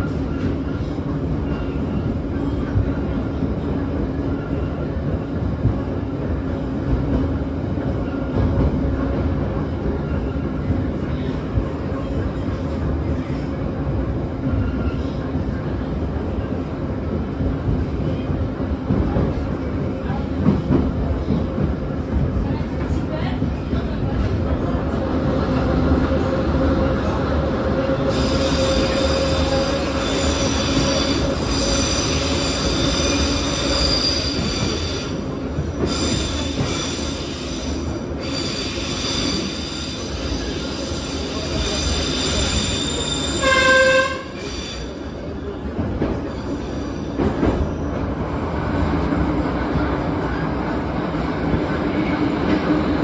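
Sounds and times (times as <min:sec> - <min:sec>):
train wheels squealing: 0:28.1 - 0:45.3, 0:46.2 - 0:48.1
train horn blast: 0:43.4 - 0:44.4.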